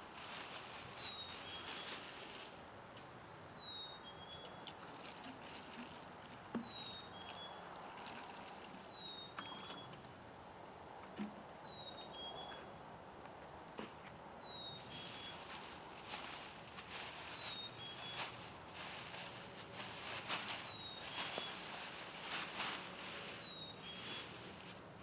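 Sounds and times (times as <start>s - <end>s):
soil and roots being dug: 4.4s - 9.8s, 13.8s - 24.9s.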